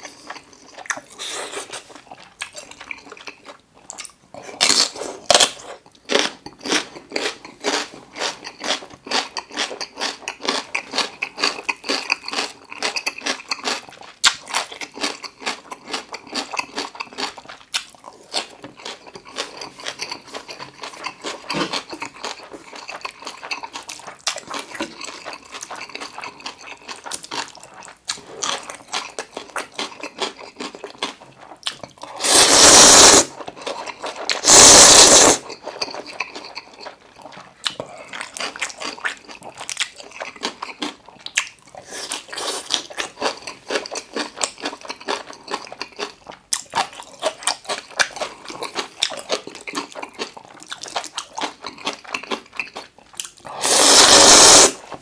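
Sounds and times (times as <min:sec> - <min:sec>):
chewing with wet smacks and crunches: 0:00.0 - 0:04.7, 0:05.7 - 0:32.2, 0:33.3 - 0:34.4, 0:35.4 - 0:53.6
loud slurps of noodles: 0:32.2 - 0:33.4, 0:34.3 - 0:35.5, 0:53.5 - 0:54.9.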